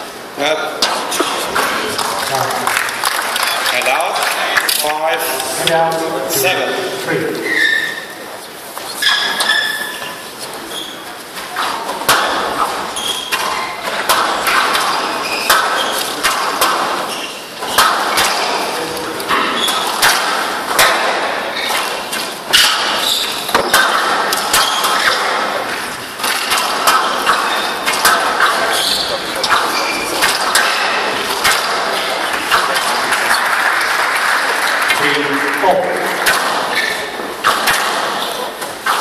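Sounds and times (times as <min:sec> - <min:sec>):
crowd murmur: 0:00.0 - 0:09.0, 0:10.2 - 0:39.0
squash ball smacking: 0:11.5 - 0:39.0.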